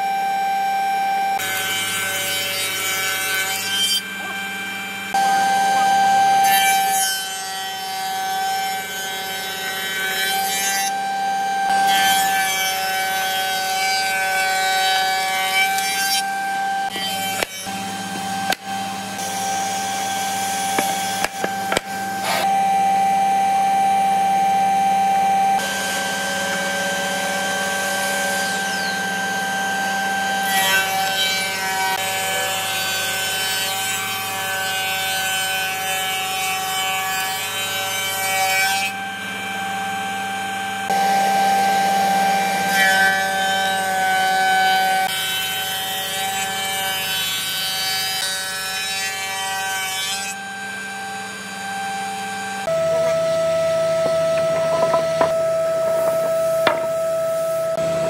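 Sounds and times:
spindle moulder whining: 2.9 - 7.0, 15.3 - 23.1, 52.3 - 58.0
wooden boards clacking: 20.7 - 22.4, 54.0 - 57.0.

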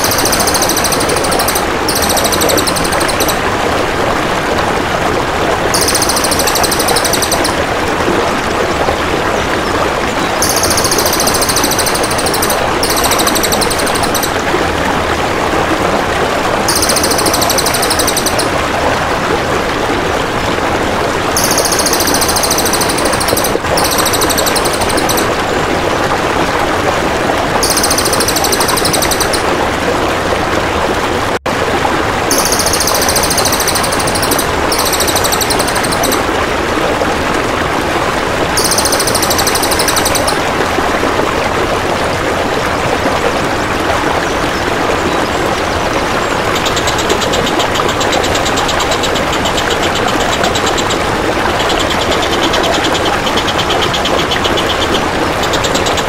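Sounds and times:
high buzzy insect trill: 0.0 - 3.4, 5.8 - 7.6, 10.4 - 14.4, 16.7 - 18.5, 21.4 - 25.3, 27.6 - 29.4, 32.3 - 36.1, 38.6 - 40.4
flowing water: 0.0 - 56.0.

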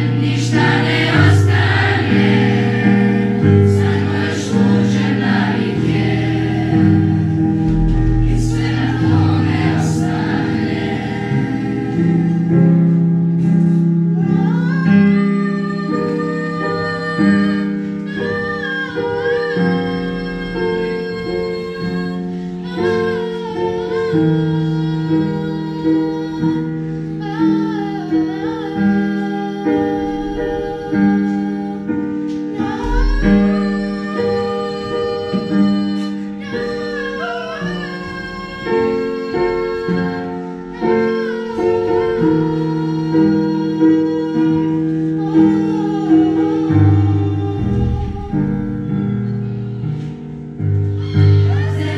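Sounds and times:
children's choir singing: 0.0 - 13.1, 14.2 - 26.7, 32.5 - 50.1, 51.0 - 51.9
keyboard chords: 0.0 - 13.4.

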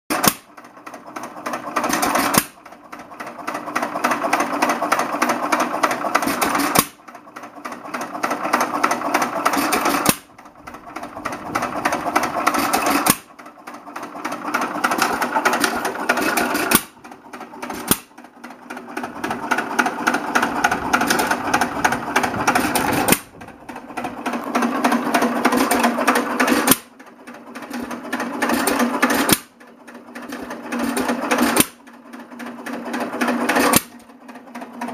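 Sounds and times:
engine mechanical clatter: 0.1 - 34.9
engine firing bang: 20.4 - 24.2.

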